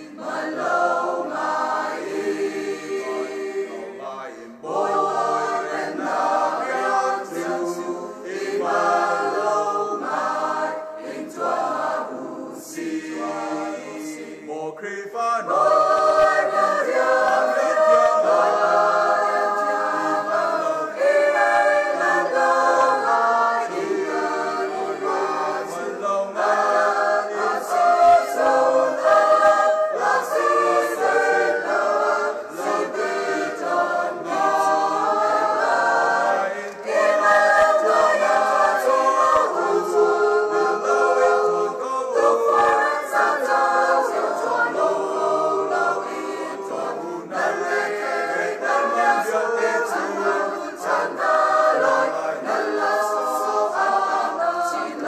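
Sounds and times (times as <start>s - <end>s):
mixed choir singing: 0.0s - 55.0s.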